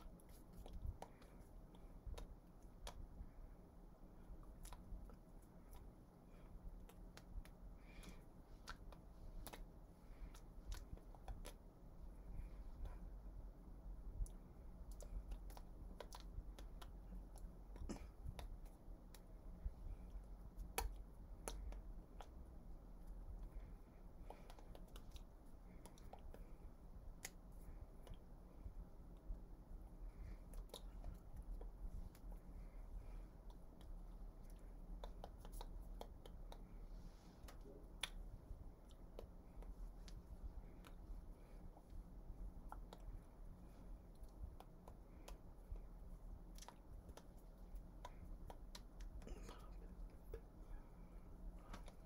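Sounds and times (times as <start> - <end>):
hands clicking and tapping: 0.0 - 3.3, 6.7 - 11.6, 14.2 - 26.5, 33.0 - 36.7, 38.8 - 42.0, 42.6 - 43.3, 44.1 - 45.9, 46.5 - 50.6, 51.6 - 52.0
faint low hum: 0.0 - 52.0
soft clicks and taps: 42.6 - 52.0.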